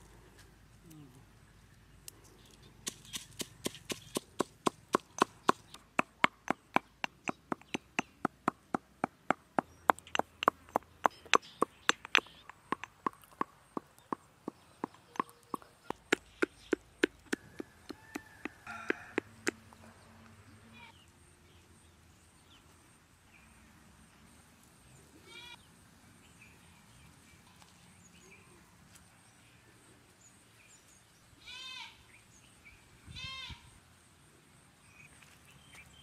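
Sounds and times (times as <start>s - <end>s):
sharp evenly spaced knocks: 2.8s - 19.6s.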